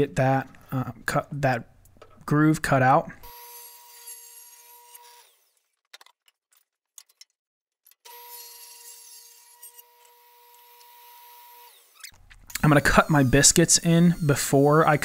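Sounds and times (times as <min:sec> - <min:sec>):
table saw whining: 0:03.2 - 0:05.6, 0:08.0 - 0:15.0.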